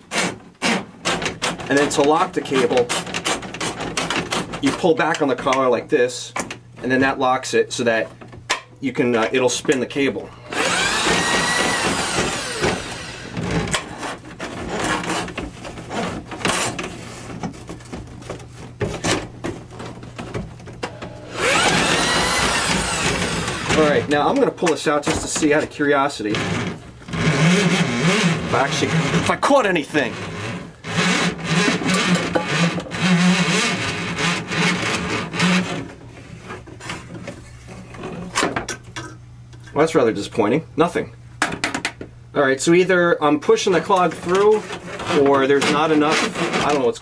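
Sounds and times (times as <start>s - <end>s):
low steady hum: 1.1s - 47.0s
steel cable scraping in pipe: 44.2s - 47.0s.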